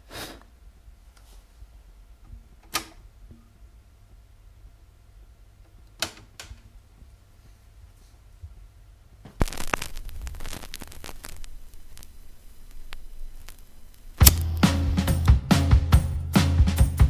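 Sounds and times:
vinyl surface crackle and pops: 9.2 - 14.9
stylus dropping onto record: 9.3 - 15.3.

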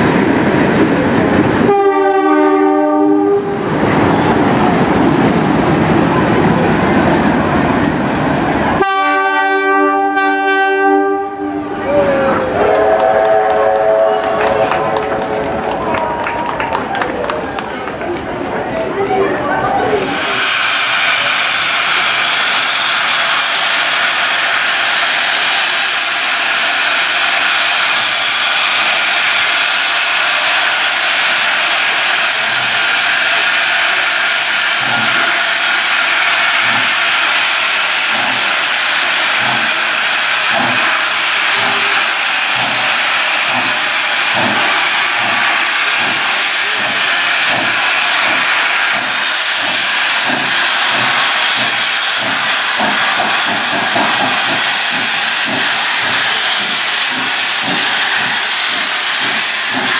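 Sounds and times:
low locomotive chuffs: 19.5 - 59.9
steam hissing from locomotive: 19.8 - 59.9.

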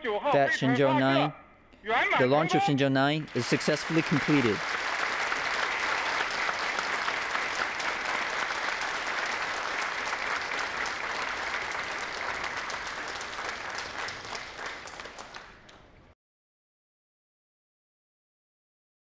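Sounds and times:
people applauding: 2.3 - 15.9.

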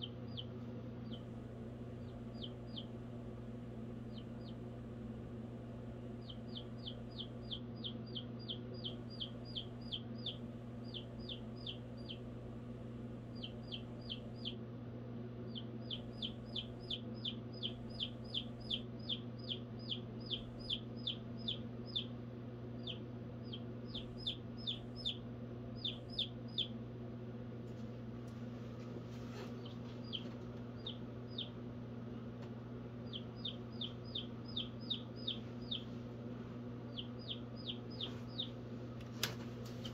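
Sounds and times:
chick peeping: 0.0 - 3.2, 4.0 - 4.8, 6.1 - 12.3, 13.3 - 14.6, 15.5 - 26.8, 29.2 - 31.6, 32.9 - 36.0, 36.8 - 38.6
steady low hum: 0.0 - 39.9.

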